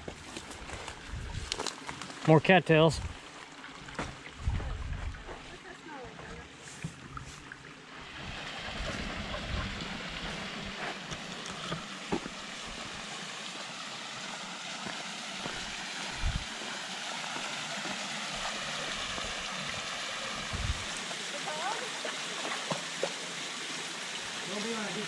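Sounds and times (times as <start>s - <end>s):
soft low thumps: 4.0s - 5.4s, 15.5s - 16.5s, 20.5s - 20.9s
waterfall rushing: 11.9s - 22.4s, 24.2s - 25.0s.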